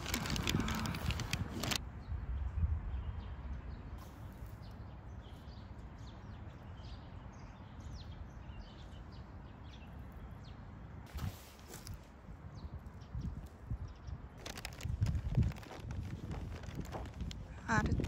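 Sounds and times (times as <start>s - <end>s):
rustling noise: 0.0s - 1.8s, 11.1s - 12.2s, 14.4s - 18.0s
small birds chirping: 0.0s - 11.0s, 11.6s - 18.0s.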